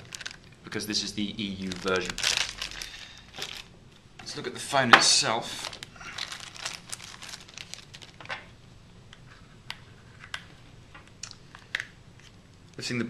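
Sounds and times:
plastic wrapping crinkling: 0.0 - 8.6.

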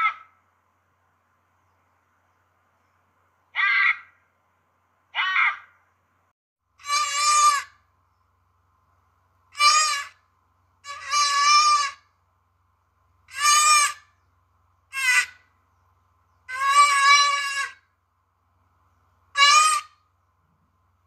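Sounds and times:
antelope calling: 0.0 - 0.4, 3.5 - 4.2, 5.1 - 5.8, 6.8 - 7.8, 9.6 - 10.2, 10.8 - 12.1, 13.3 - 14.2, 14.9 - 15.5, 16.4 - 17.8, 19.3 - 20.0.

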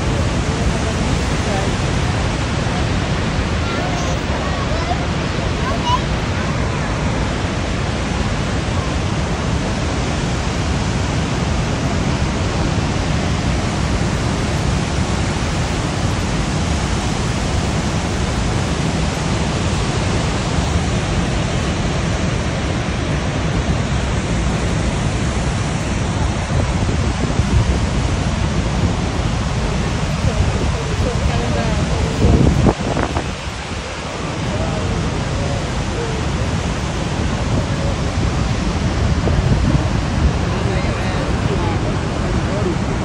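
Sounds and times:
roar of waterfall: 0.0 - 43.0.

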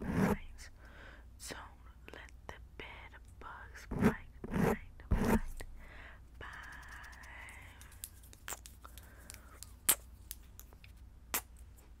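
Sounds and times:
soft hiss: 0.4 - 12.0.

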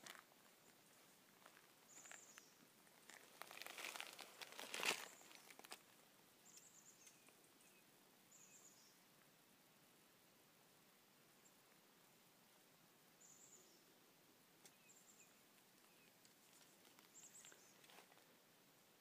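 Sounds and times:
crunching rustle: 0.0 - 6.0, 15.8 - 18.3.

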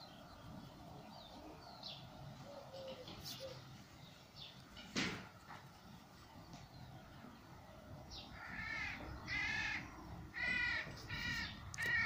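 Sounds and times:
crow cawing: 8.4 - 12.0.

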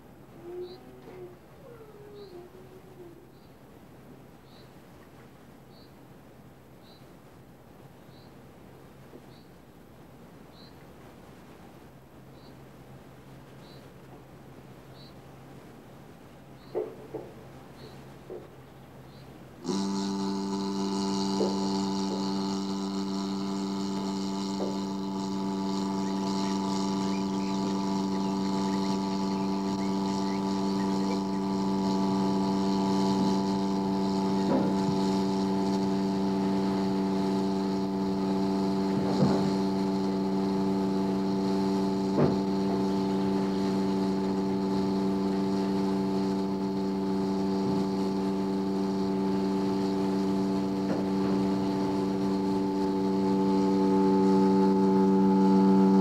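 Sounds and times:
steady drone of held tones: 0.0 - 3.6, 19.6 - 56.0.

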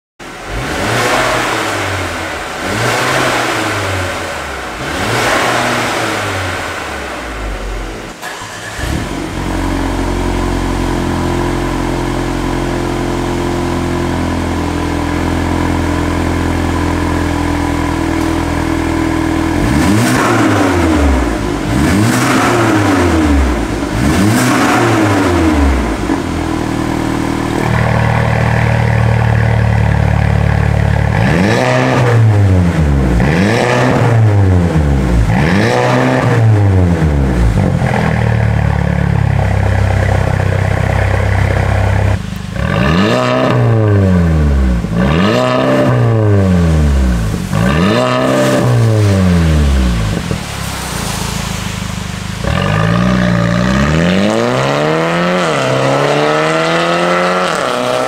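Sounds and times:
car exhaust rev blips: 0.2 - 58.0.

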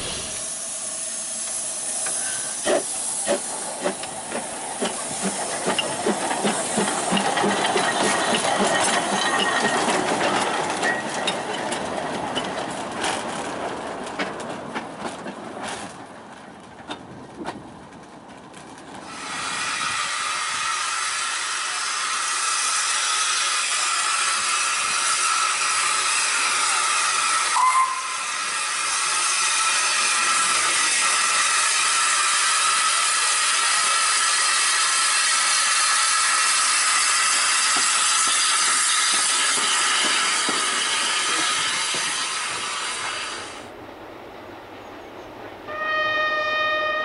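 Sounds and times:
steam hissing: 0.0 - 9.8, 19.1 - 43.7
steam locomotive exhaust beats: 0.0 - 15.1, 19.0 - 43.7
wheel and rod clatter: 3.8 - 19.1.

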